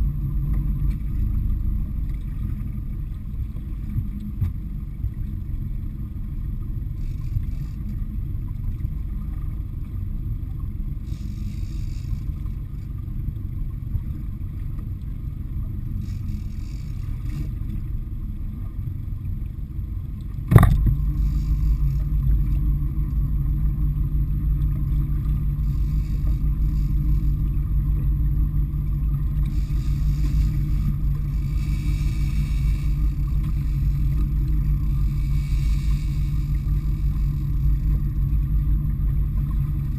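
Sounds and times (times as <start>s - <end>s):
boat engine rumbling: 0.0s - 39.9s.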